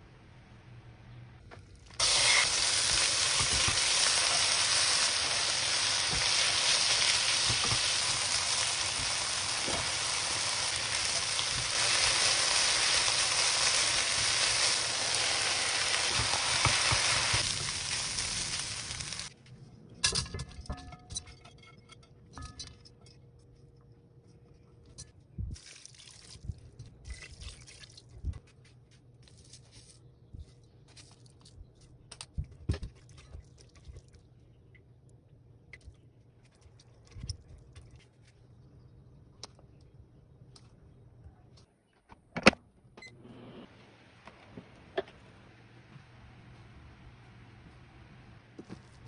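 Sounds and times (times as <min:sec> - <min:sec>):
food sizzling in a frying pan: 0:02.0 - 0:19.3.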